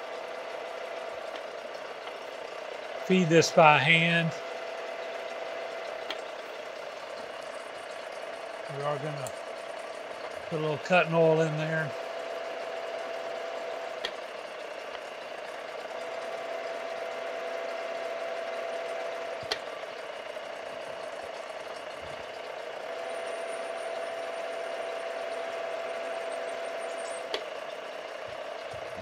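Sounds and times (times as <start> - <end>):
steady motor whine: 0.0 - 29.0.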